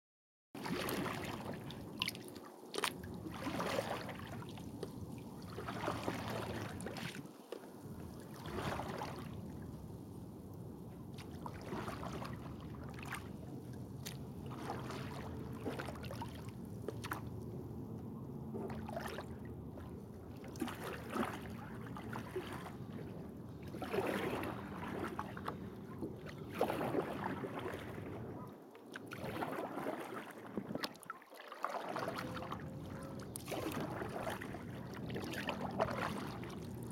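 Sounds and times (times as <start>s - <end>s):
kayak paddle splashing: 0.6s - 10.0s, 11.0s - 17.4s, 18.6s - 36.9s
water sloshing against hull: 0.6s - 36.9s.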